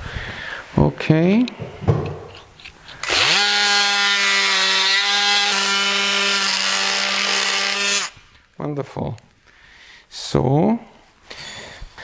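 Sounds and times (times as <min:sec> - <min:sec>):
bone saw high buzz: 0:03.0 - 0:08.2.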